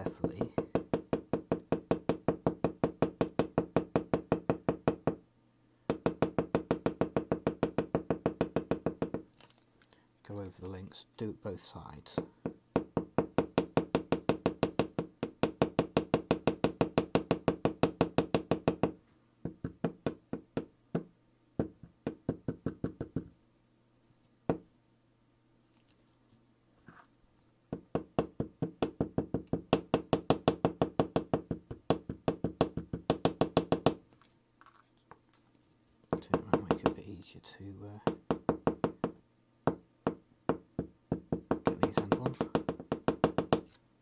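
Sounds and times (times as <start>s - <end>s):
small hammer tapping on metal: 0.1s - 5.2s, 38.0s - 43.8s.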